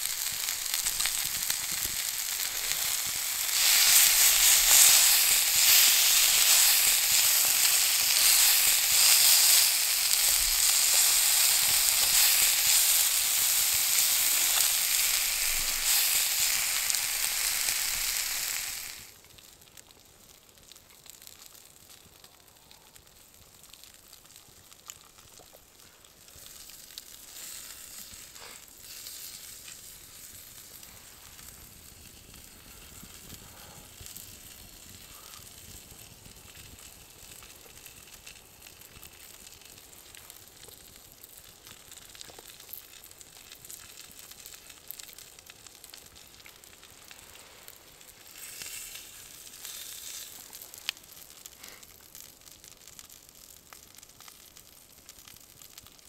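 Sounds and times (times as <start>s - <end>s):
campfire hissing and crackling: 0.0s - 56.0s.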